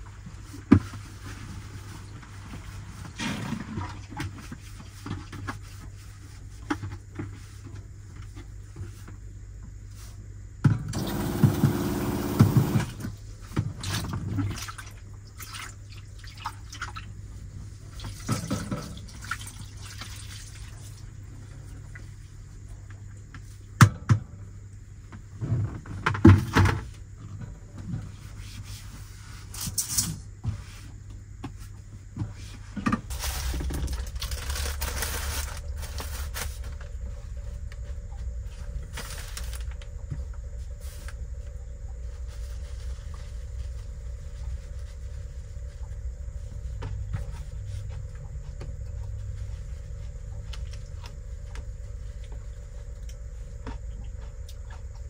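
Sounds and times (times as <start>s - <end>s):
steady low hum: 0.0s - 55.0s
water splashing in plastic basin: 13.7s - 17.2s, 17.9s - 21.1s.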